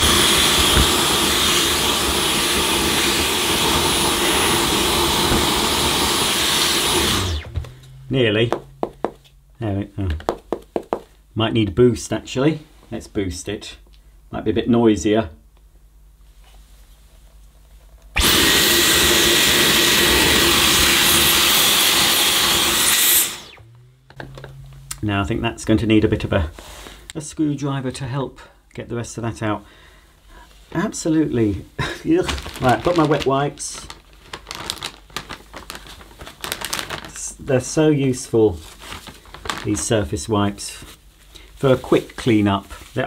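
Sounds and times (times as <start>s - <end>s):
vacuum cleaner running: 0.0s - 9.2s, 18.2s - 25.2s.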